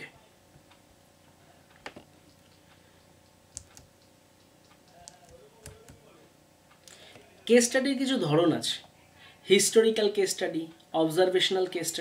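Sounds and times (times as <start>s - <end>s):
computer keys clicking: 1.8s - 6.0s.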